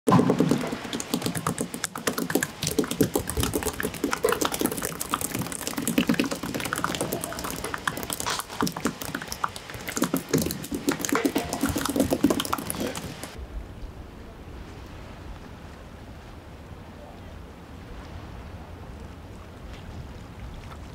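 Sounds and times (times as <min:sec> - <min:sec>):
fish slapping on cutting board: 0:00.1 - 0:13.4
faint steady wind: 0:01.5 - 0:20.9.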